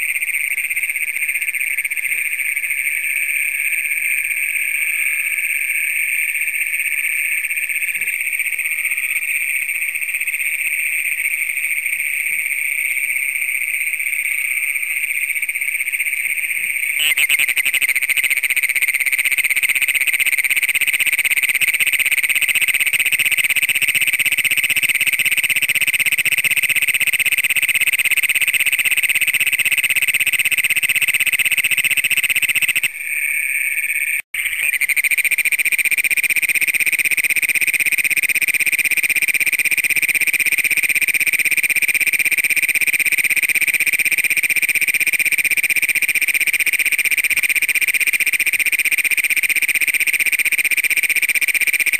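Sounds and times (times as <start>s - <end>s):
chorus of toads trilling: 0.0s - 51.9s
close toad loud trill: 17.0s - 18.4s.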